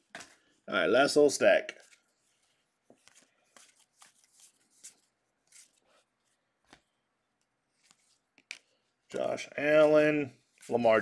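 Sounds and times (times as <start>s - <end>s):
cards flicking and rustling: 0.0s - 0.6s, 1.7s - 11.0s.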